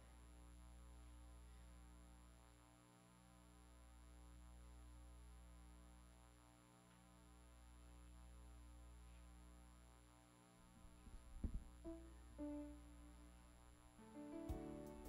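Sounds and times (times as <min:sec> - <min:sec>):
low electrical hum: 0:00.0 - 0:15.0
electronic keyboard held note: 0:11.8 - 0:15.0.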